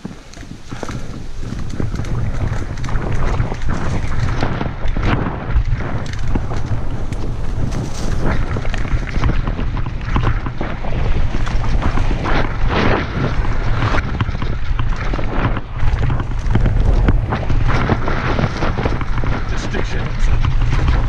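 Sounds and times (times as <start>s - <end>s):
bike rattling: 0.0s - 21.0s
tyres clattering on trail: 0.0s - 21.0s
wind buffeting microphone: 0.0s - 21.0s.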